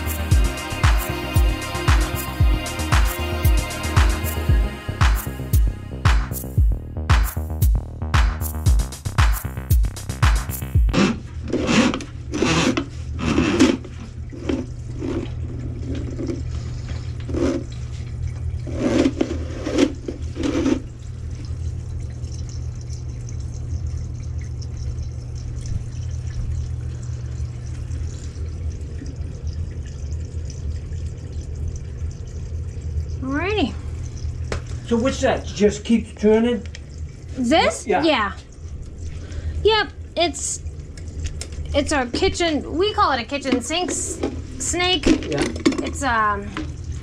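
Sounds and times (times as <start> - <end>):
drain snake motor hum: 0.0 - 5.7, 9.8 - 17.7.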